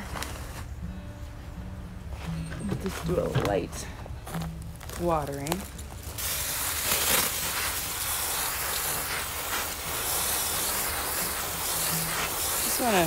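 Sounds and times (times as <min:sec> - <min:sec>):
hose spraying water on soil: 0:06.2 - 0:13.0.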